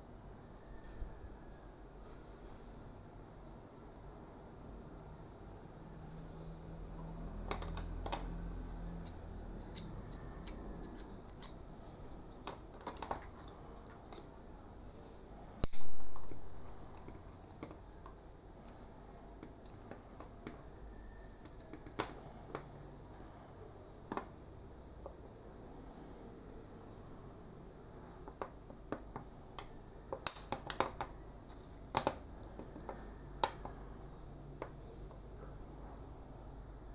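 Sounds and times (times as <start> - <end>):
plastic parts clicking and tapping: 7.4 - 8.4, 12.3 - 14.3, 15.6 - 18.8, 21.4 - 22.7, 28.2 - 33.8.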